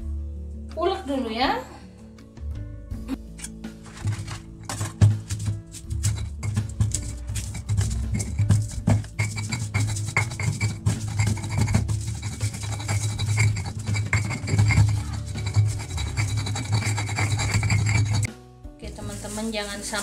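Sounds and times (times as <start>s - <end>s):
background music: 0.0s - 20.0s
stone pestle grinding in mortar: 3.4s - 18.3s.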